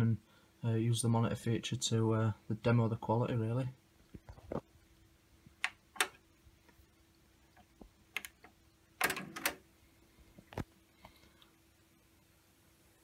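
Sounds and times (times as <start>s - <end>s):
cassette mechanism rattling: 6.0s - 6.2s, 8.2s - 9.6s.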